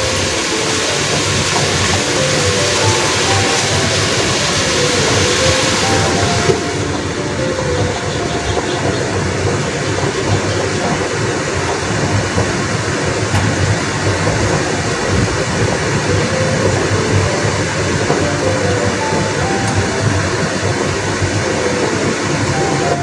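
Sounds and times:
vegetables sizzling in a wok: 0:00.0 - 0:06.5.

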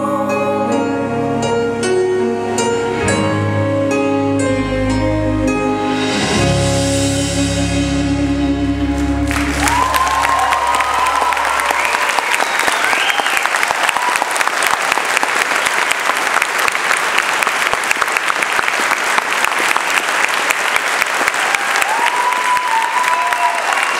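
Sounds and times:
audience applauding: 0:09.0 - 0:23.9.

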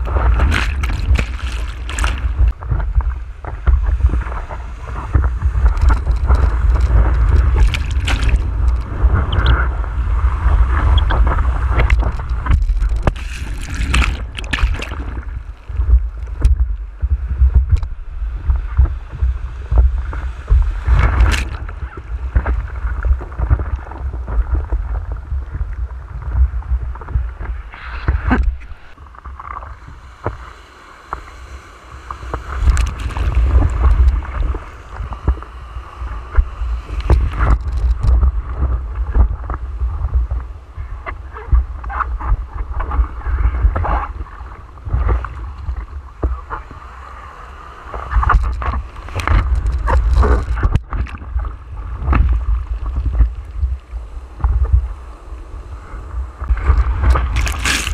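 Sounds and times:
whitewater wave breaking: 0:00.0 - 0:16.7, 0:29.7 - 0:39.2, 0:55.7 - 0:57.9
seawater splashing: 0:00.0 - 0:16.8, 0:30.4 - 0:38.3, 0:56.4 - 0:57.9
wind rumble on microphone: 0:00.0 - 0:57.9.

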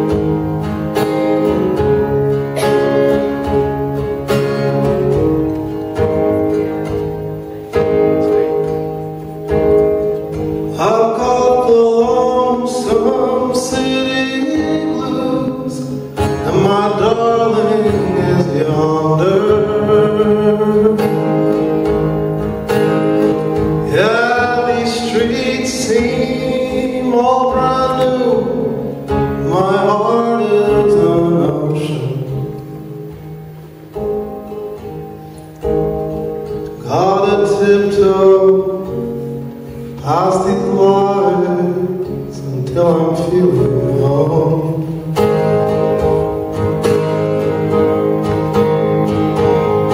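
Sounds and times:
acoustic guitar strumming: 0:00.0 - 0:49.9
man singing folk song: 0:00.0 - 0:49.9.

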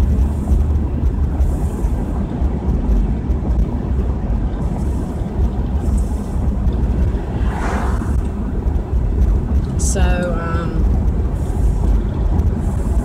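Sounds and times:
car interior road rumble: 0:00.0 - 0:13.0.

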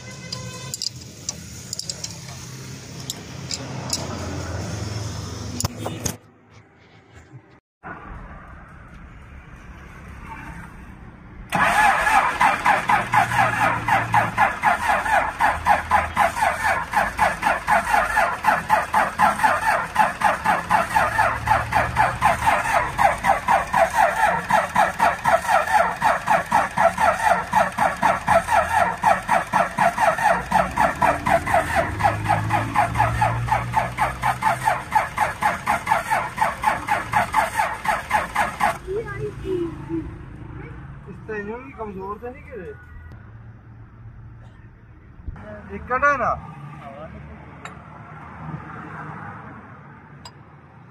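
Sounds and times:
diesel engine starter cranking: 0:00.0 - 0:04.2, 0:11.5 - 0:39.0.

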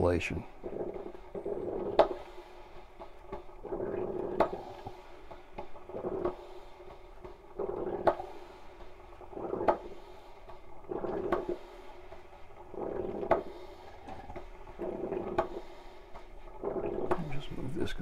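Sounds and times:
coffee percolator gurgling: 0:00.0 - 0:18.0.

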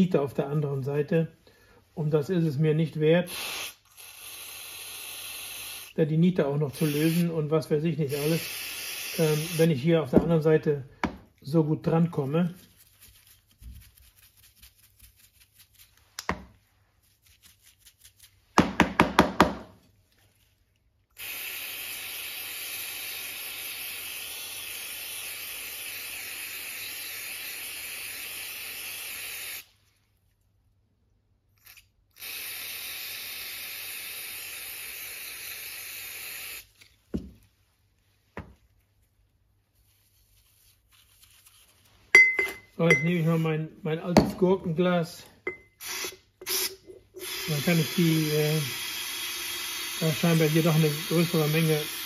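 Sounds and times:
aerosol spray hissing: 0:03.2 - 0:06.0, 0:06.6 - 0:10.3, 0:21.2 - 0:29.7, 0:32.2 - 0:37.3, 0:45.5 - 0:52.0.

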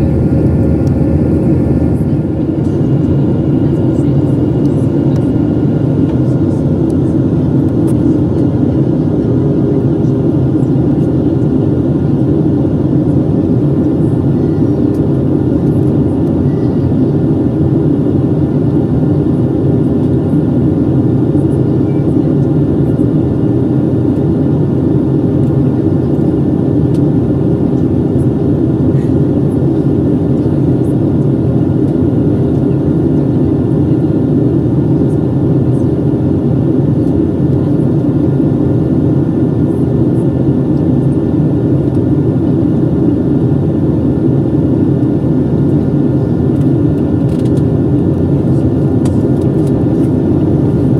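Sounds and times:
airplane cabin engine rush: 0:00.0 - 0:50.9.

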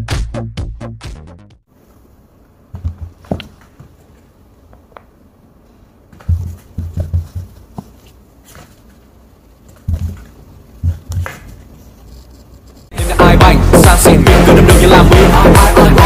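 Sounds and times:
light scratching: 0:10.9 - 0:12.9.

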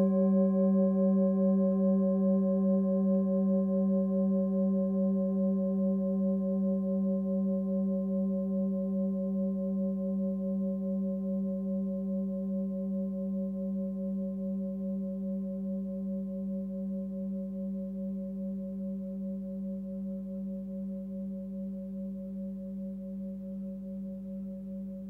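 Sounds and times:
singing bowl ringing: 0:00.0 - 0:25.0.

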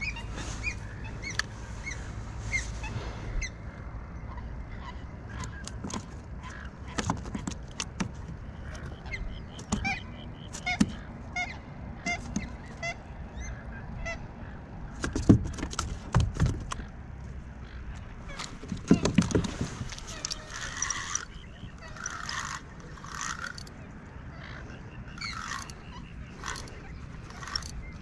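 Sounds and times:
waterfowl honking: 0:19.9 - 0:23.7, 0:24.3 - 0:27.7.

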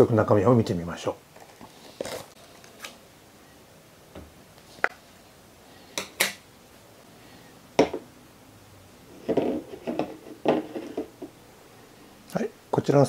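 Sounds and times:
plastic parts knocking on wooden table: 0:07.8 - 0:08.0, 0:09.2 - 0:11.3.

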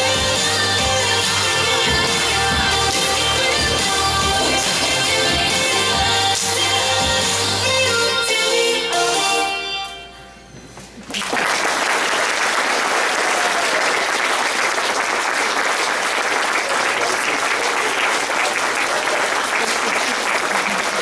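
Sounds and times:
music: 0:00.0 - 0:11.0
audience applauding: 0:11.0 - 0:21.0.

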